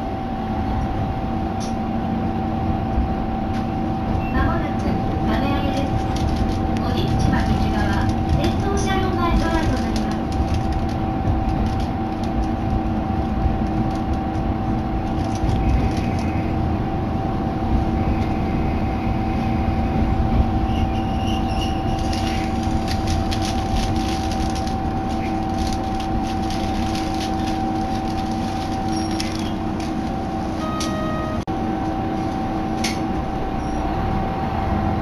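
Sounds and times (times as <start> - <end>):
railcar engine drone: 0.0 - 35.0
faint high squeals: 20.6 - 22.5.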